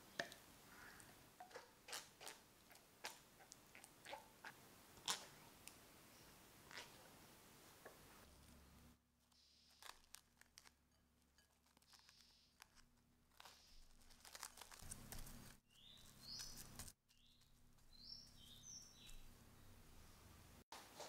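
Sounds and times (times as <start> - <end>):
cling film crinkling: 9.2 - 18.5
high bird-like chirps: 15.7 - 19.2.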